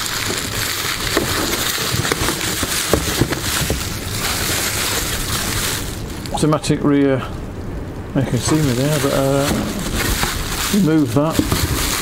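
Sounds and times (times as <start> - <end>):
bubble wrap crinkling: 0.0 - 6.7, 8.1 - 12.0.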